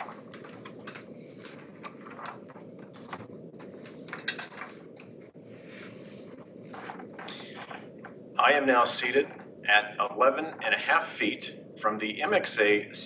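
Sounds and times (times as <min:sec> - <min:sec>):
office chairs clicking and knocking: 0:00.0 - 0:05.3, 0:06.4 - 0:08.2
steady low background noise: 0:00.0 - 0:13.0.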